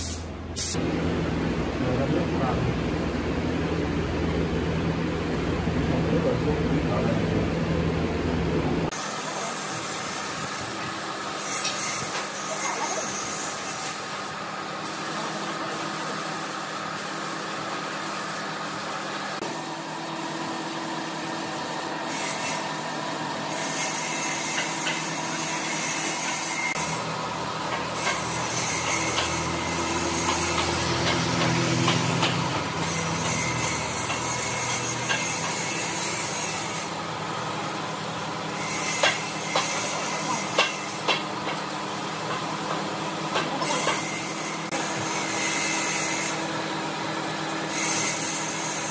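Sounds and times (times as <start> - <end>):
spray gun hissing: 0.0 - 0.8.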